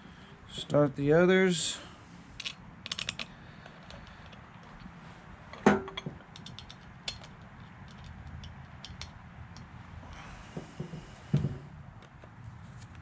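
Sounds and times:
small metal clicks and taps: 2.4 - 4.9, 5.5 - 9.7.

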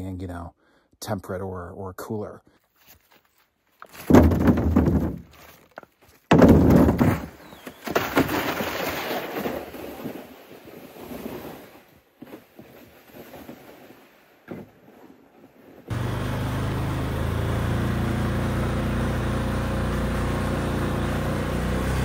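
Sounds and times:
sled scraping over wet snow: 7.0 - 22.0.

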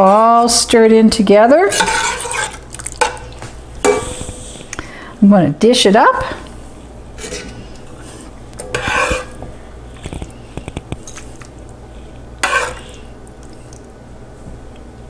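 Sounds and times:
ladle scooping chili from pot: 1.7 - 4.6, 7.2 - 11.7, 12.4 - 13.8.

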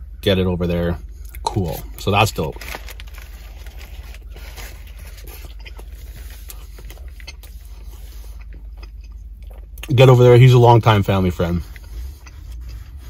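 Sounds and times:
steady low hum: 0.0 - 13.0
person chewing: 3.2 - 9.9, 11.6 - 13.0.

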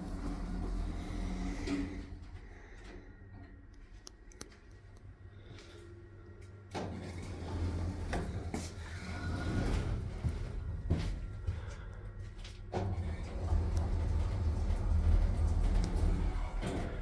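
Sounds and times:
elevator doors sliding open: 0.0 - 2.2, 6.7 - 11.2, 12.7 - 17.0
steady low hum: 0.0 - 17.0.

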